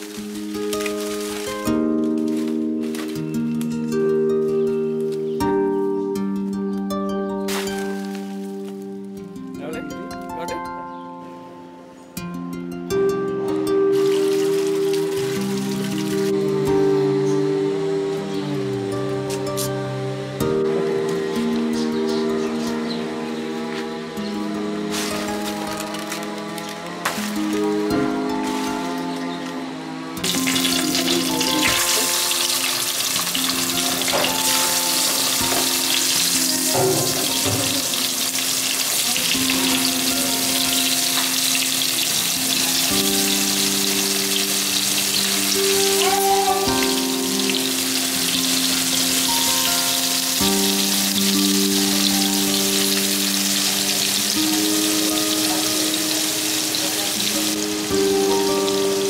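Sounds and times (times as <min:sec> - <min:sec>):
soft instrumental music: 0:00.0 - 0:59.0
fish sizzling in hot oil: 0:13.9 - 0:16.4, 0:30.2 - 0:59.0.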